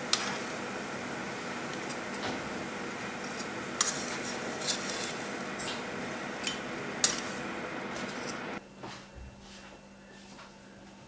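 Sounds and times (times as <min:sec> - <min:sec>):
frying sizzle: 0:00.0 - 0:08.6
metal tongs tapping a frying pan: 0:06.4 - 0:07.3.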